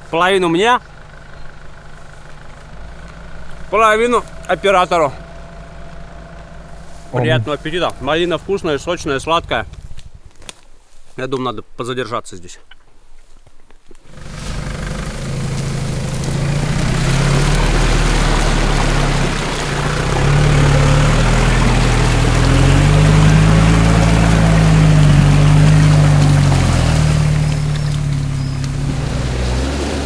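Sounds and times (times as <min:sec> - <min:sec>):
engine pulling under load: 0:00.0 - 0:10.4, 0:14.0 - 0:30.0
water sloshing around tyres: 0:14.1 - 0:30.0.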